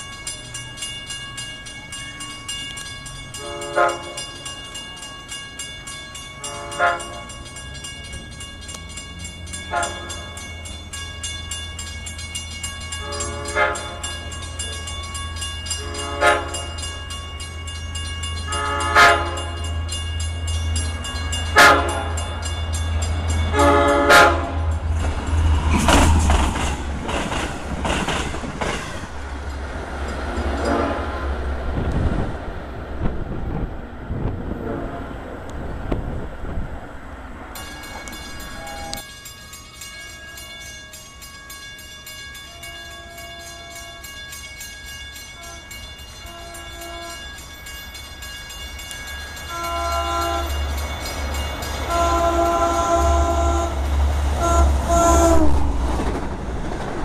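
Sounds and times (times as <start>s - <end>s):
train wheels on rails clickety-clack: 0.0s - 34.6s, 37.4s - 57.0s
train air horn blasts: 3.4s - 4.4s, 6.4s - 7.3s, 9.7s - 10.3s, 13.0s - 14.1s, 15.8s - 16.8s, 18.5s - 19.6s, 21.5s - 22.2s, 23.5s - 24.7s, 30.6s - 31.4s, 34.5s - 35.2s, 38.5s - 39.0s, 42.5s - 44.1s, 45.4s - 47.4s, 49.5s - 50.6s, 51.9s - 53.8s, 54.4s - 55.7s.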